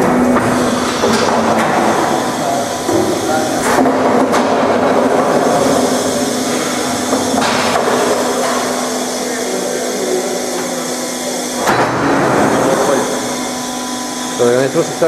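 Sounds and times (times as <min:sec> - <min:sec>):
machine hum and rattle: 0:00.0 - 0:15.0.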